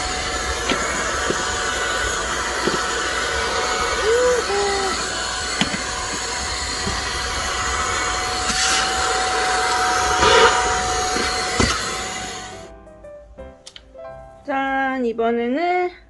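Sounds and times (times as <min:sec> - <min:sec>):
stick vacuum motor whining: 0:00.0 - 0:12.7.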